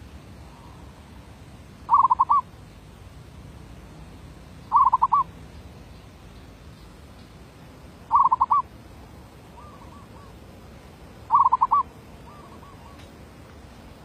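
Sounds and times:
dove cooing: 0:01.9 - 0:02.5, 0:04.7 - 0:05.3, 0:08.1 - 0:08.7, 0:09.5 - 0:10.4, 0:11.3 - 0:13.1.

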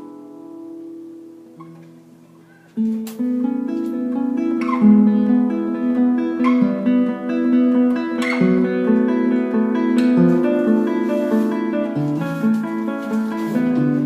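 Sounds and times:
acoustic guitar music: 0:00.0 - 0:14.0.

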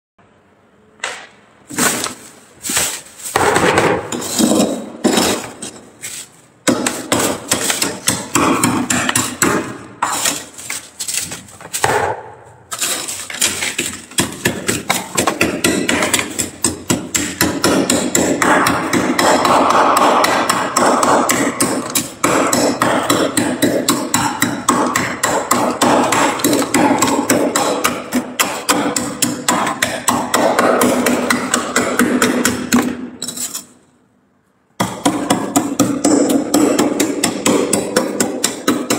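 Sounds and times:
spoon scraping frost: 0:01.7 - 0:03.4, 0:04.1 - 0:06.5, 0:10.0 - 0:11.8, 0:12.6 - 0:14.1.

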